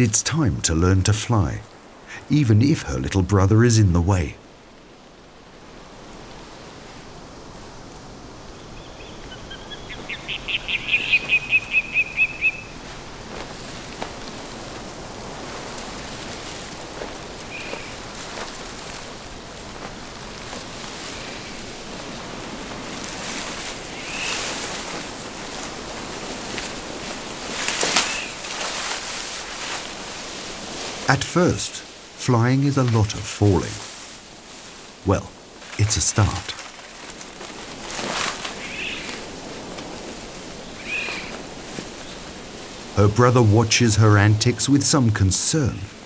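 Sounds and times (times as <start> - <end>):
leaves rustling: 0.0 - 46.0
wing beats and thrashing branches: 0.0 - 46.0
eagle high calls: 8.8 - 12.9, 17.4 - 18.2, 23.8 - 24.8, 27.7 - 28.5, 38.5 - 39.3, 40.7 - 41.4.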